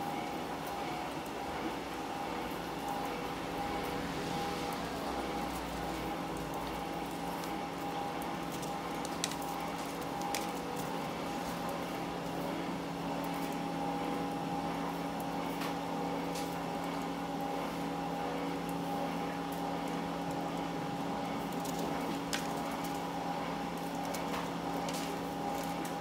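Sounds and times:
machinery hum: 0:00.0 - 0:26.0.

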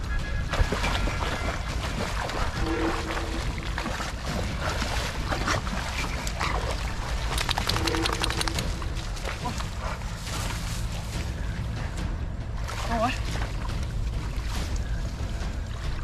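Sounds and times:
person wading through water plants: 0:00.0 - 0:16.0
steady low rumble: 0:00.0 - 0:16.0.

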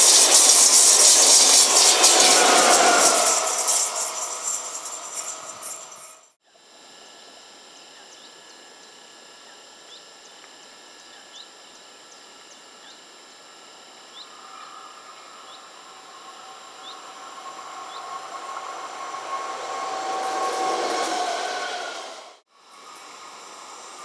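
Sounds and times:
electric train hum: 0:00.0 - 0:06.4, 0:13.7 - 0:24.0
bird chirping: 0:14.2 - 0:19.0.

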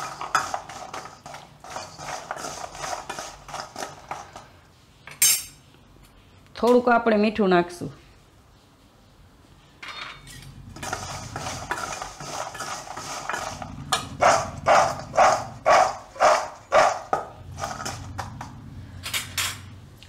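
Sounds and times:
nuts rattling in a steel bowl: 0:00.0 - 0:04.4.

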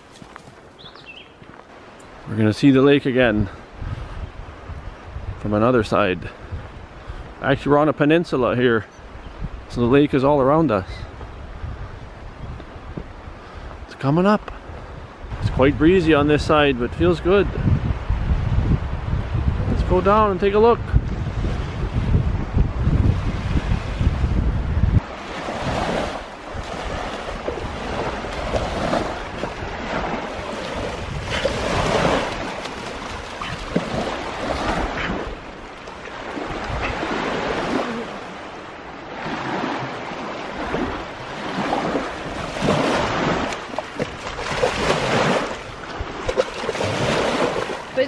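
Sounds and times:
small waves lapping on shore: 0:00.0 - 0:16.7, 0:23.0 - 0:48.0
dog splashing through water: 0:26.6 - 0:35.3, 0:42.4 - 0:45.6.

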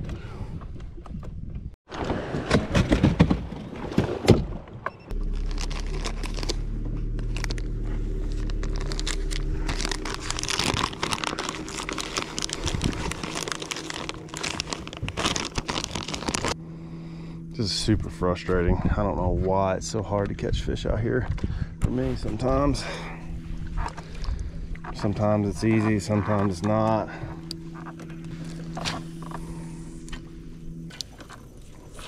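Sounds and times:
boat motor humming: 0:05.0 - 0:32.0
crackling and rustling: 0:05.2 - 0:16.6.

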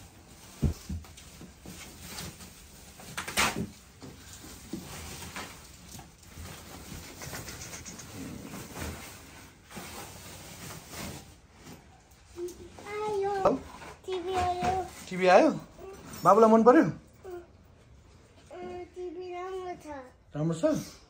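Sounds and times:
foam wrapping rustling: 0:00.0 - 0:16.4.

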